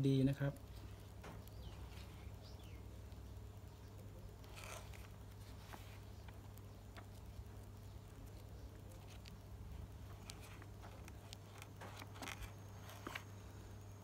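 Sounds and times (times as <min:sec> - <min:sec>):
low steady hum: 0:00.0 - 0:14.0
book pages turning: 0:04.4 - 0:07.4, 0:08.2 - 0:13.5.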